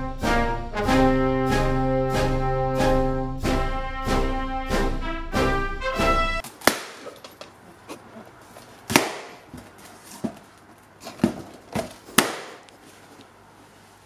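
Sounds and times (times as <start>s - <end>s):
balloons bursting: 6.4s - 7.4s, 8.8s - 9.8s, 11.1s - 12.7s
rubber being handled: 6.5s - 14.0s.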